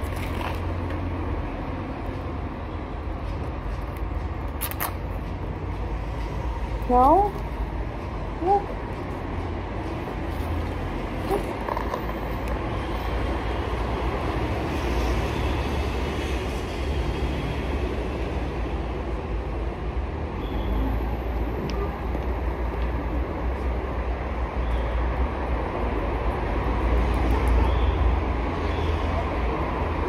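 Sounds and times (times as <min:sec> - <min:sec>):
street noise rumble and hiss: 0:00.0 - 0:30.0.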